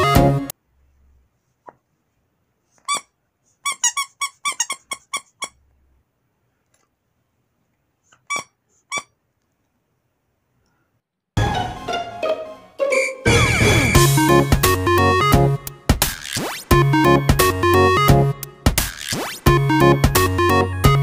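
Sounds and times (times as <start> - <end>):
dog toy squeaking: 2.8 - 5.6, 8.2 - 9.2.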